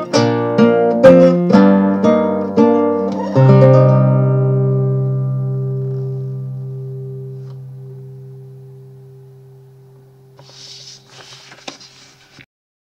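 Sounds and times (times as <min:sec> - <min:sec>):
acoustic guitar chord ringing: 0:00.0 - 0:10.6
short rustling: 0:10.4 - 0:12.5.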